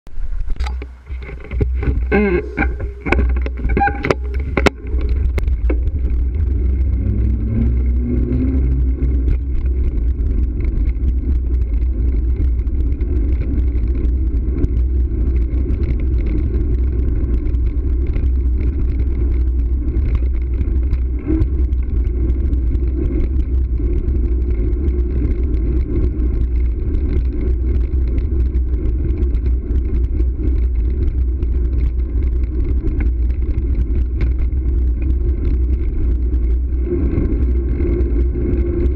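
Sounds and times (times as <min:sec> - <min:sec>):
motor vehicle engine: 0:00.0 - 0:38.9
tyre and road rumble: 0:00.1 - 0:38.9
wind buffeting microphone: 0:00.1 - 0:38.9.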